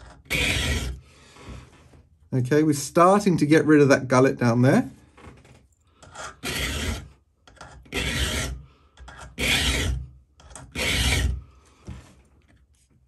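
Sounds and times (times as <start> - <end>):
file rasping on steel: 0.0 - 1.6, 6.0 - 11.5.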